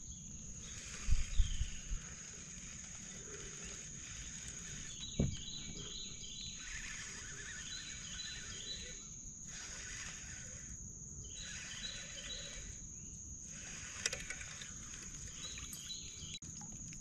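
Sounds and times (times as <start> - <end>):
high insect drone: 0.0 - 17.0
low thump: 5.0 - 5.9.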